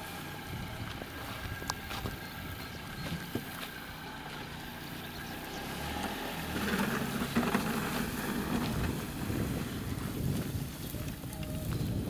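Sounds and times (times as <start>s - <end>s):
car engine running at low speed: 0.0s - 12.0s
tyres rolling over grass: 0.0s - 12.0s.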